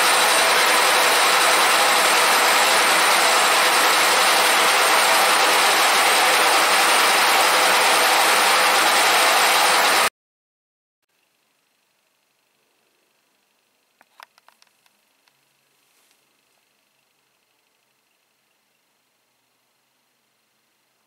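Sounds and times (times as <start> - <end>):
milling machine cutting metal: 0.0 - 10.1.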